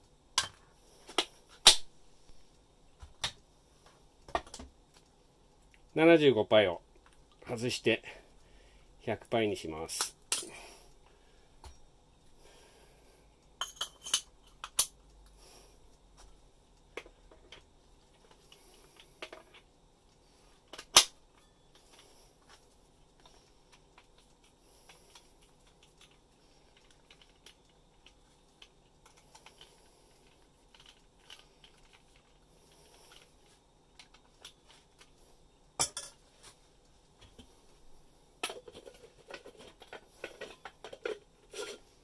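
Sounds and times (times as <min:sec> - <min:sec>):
soft handling sounds: 0:21.3 - 0:42.0.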